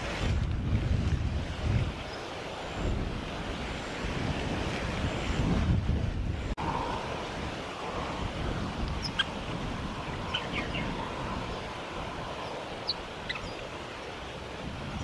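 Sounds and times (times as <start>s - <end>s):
birds high chirps: 8.9s - 9.3s, 10.1s - 11.0s, 12.4s - 13.7s.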